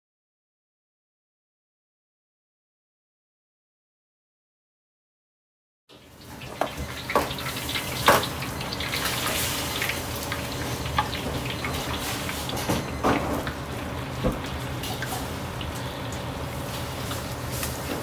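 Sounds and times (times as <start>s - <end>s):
gas wok burner: 5.9s - 18.0s
meat sizzling in hot oil: 5.9s - 18.0s
running tap: 6.0s - 18.0s.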